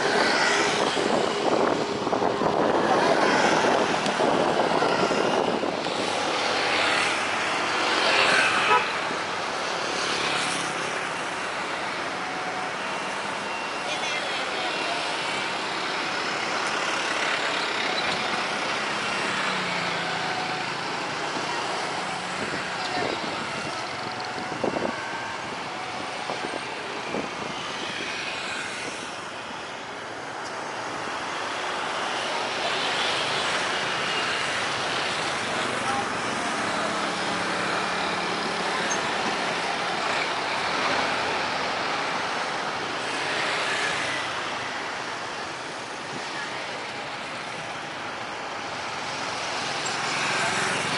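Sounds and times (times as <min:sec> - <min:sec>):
road traffic passing: 0:00.0 - 0:50.9
vehicle horn toot: 0:08.6 - 0:09.0.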